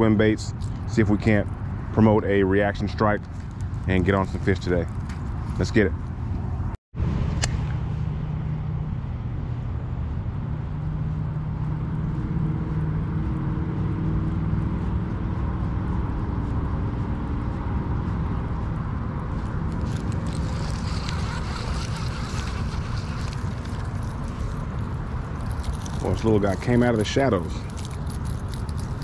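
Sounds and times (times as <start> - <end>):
wind rumble on microphone: 0.0 - 29.0
bright rustle: 19.7 - 29.0.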